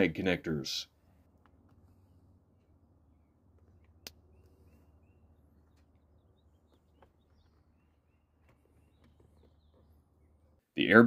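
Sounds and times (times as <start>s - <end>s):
faint bird chirps: 3.0s - 10.6s
soft clicks: 3.5s - 4.6s.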